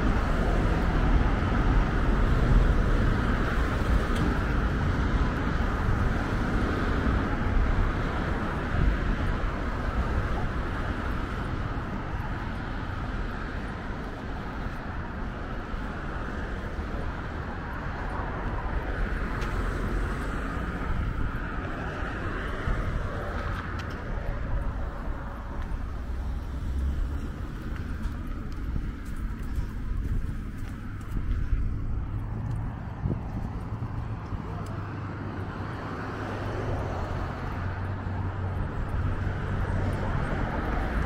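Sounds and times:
passing car traffic: 0:00.0 - 0:41.0.

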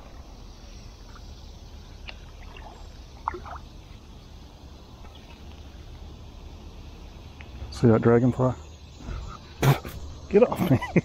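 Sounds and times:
wooden paddle in water: 0:02.0 - 0:03.7.

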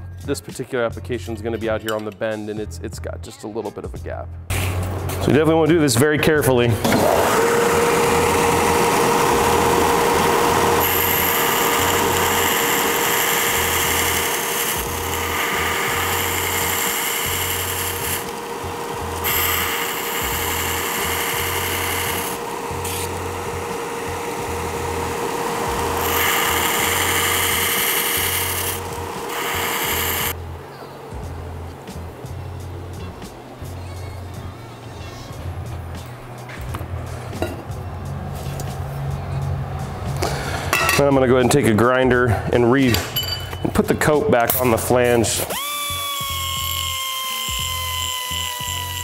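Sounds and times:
belt sander humming: 0:06.8 - 0:30.6, 0:44.6 - 0:49.0.

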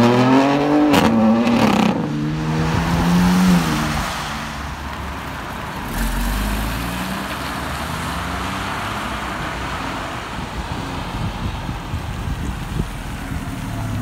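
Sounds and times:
tyres hissing on wet road: 0:03.1 - 0:11.2.

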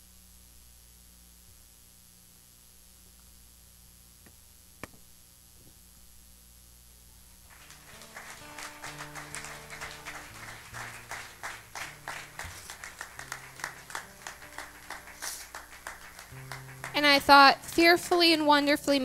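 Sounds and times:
acoustic guitar playing: 0:07.5 - 0:19.0.

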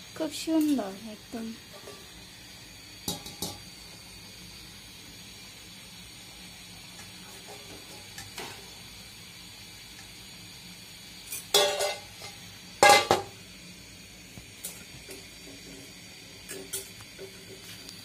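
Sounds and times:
oil sizzling in a wok: 0:00.0 - 0:18.0
metal spatula clanging on steel: 0:11.3 - 0:12.1.

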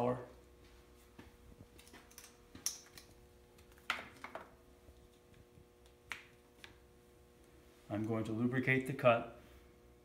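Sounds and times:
faint steady hum: 0:00.0 - 0:10.0
light clicks and knocks of parts: 0:01.2 - 0:05.2.

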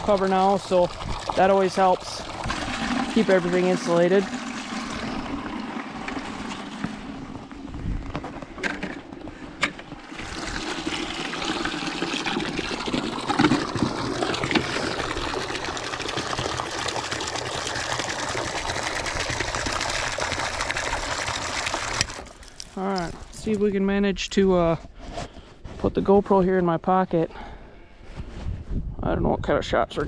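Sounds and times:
water pouring into plastic bucket: 0:00.0 - 0:23.4.

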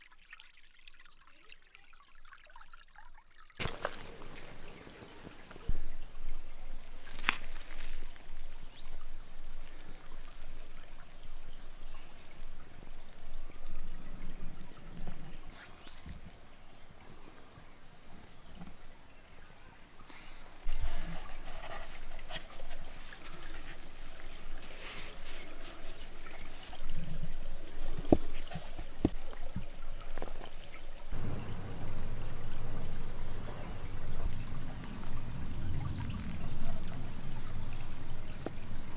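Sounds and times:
river water babbling: 0:00.0 - 0:21.4, 0:22.0 - 0:38.9
soft low knocks: 0:31.1 - 0:38.7.

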